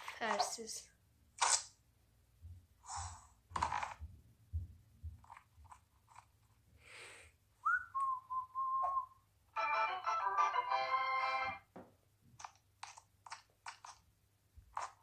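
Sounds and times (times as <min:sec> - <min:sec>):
music jingle: 0:09.6 - 0:11.7.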